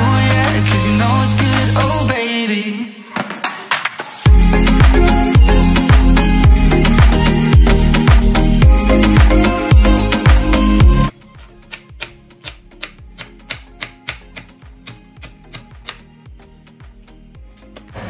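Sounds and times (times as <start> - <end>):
dance music with heavy beat: 4.2 - 11.0
knife chopping on plastic board: 11.4 - 16.0.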